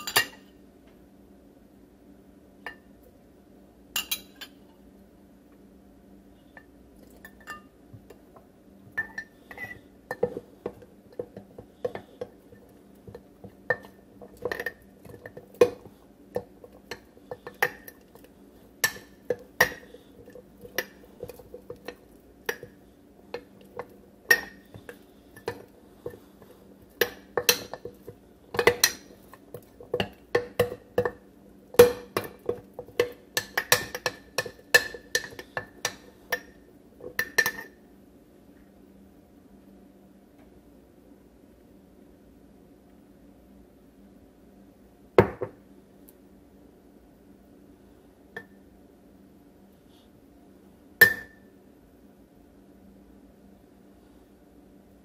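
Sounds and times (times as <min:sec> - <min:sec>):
spoon clinking against glass jar: 0:04.0 - 0:04.6.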